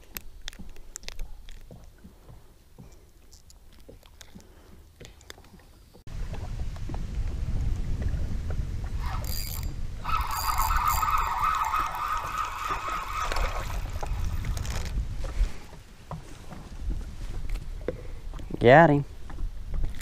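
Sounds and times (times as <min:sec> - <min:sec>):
wind rumble on microphone: 0:06.1 - 0:20.0
fishing reel whirring: 0:09.0 - 0:14.9.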